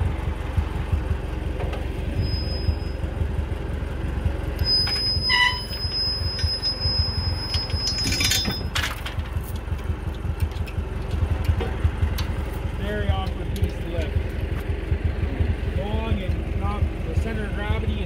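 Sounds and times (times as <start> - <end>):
tractor engine idling: 0.0 - 18.0
high metallic squeal: 2.0 - 3.2, 4.6 - 9.0
metal clinks: 4.6 - 9.6.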